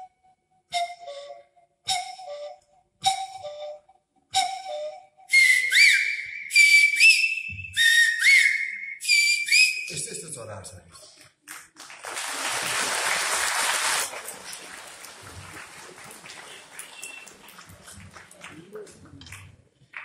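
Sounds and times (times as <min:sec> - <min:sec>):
high whistled bird call imitation: 0:04.4 - 0:10.0.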